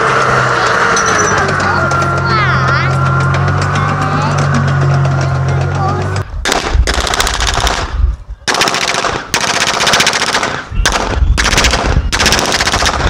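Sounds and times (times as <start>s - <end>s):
machine-gun fire bursts: 6.4s - 13.0s.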